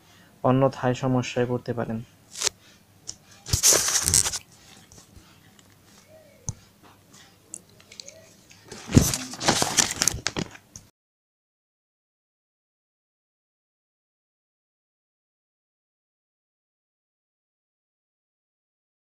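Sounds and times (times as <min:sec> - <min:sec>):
rustling crinkling handling noise: 0:02.3 - 0:02.5, 0:03.3 - 0:10.7.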